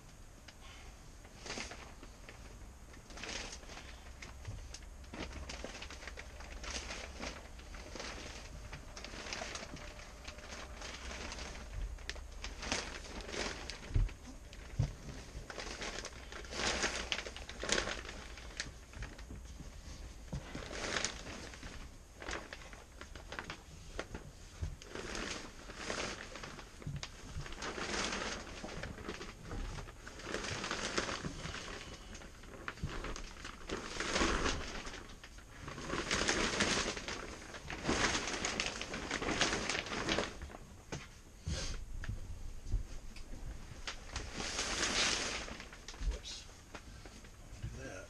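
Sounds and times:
plastic sheeting crinkling: 0.0s - 48.0s.

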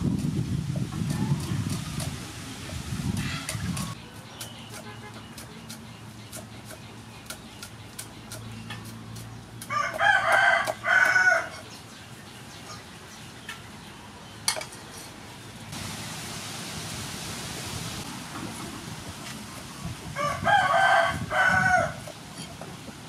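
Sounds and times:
rooster crowing: 9.7s - 11.6s, 20.2s - 22.0s
even hiss: 15.7s - 20.1s.

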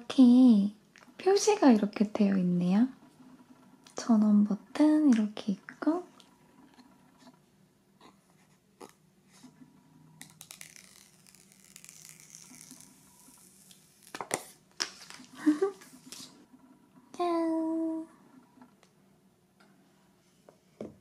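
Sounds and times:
sharp paper crackles: 10.2s - 15.3s
paper wrap rustling and peeling: 10.2s - 16.4s.

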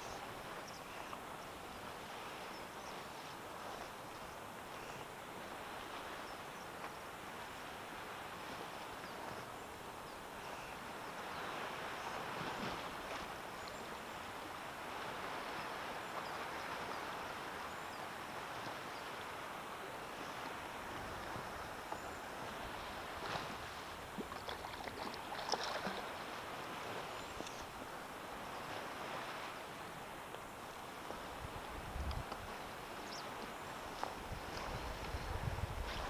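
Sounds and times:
water lapping against float tube: 21.0s - 27.9s.

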